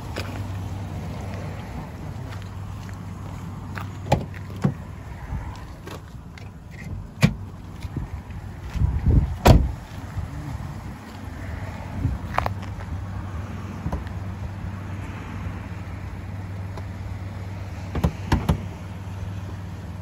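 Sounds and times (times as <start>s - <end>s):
car engine idling: 0.0s - 20.0s
sharp knocks and thumps: 17.9s - 18.7s.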